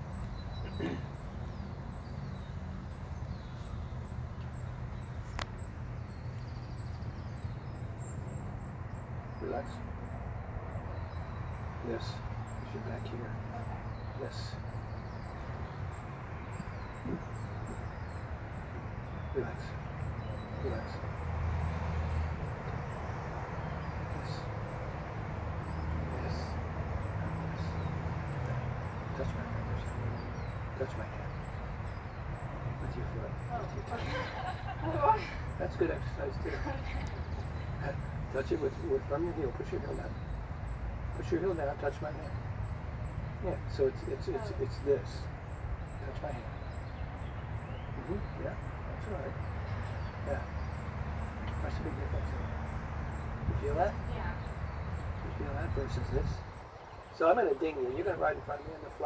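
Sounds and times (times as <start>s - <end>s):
insect chirping: 0.0s - 59.0s.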